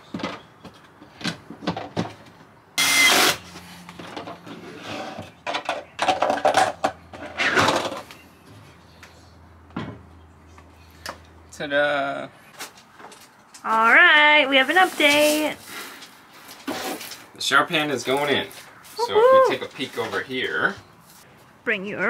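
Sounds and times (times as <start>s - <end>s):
impact driver driving screws: 2.8s - 3.4s.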